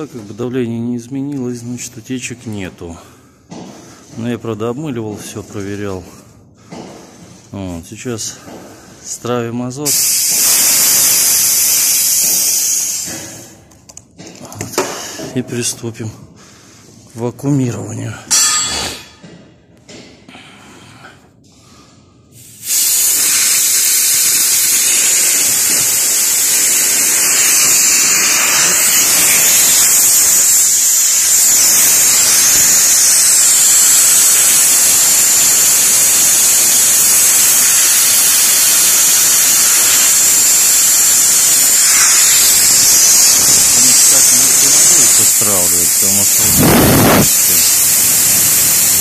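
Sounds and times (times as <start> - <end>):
gas hissing from pipes: 9.8 - 13.7, 22.2 - 49.0.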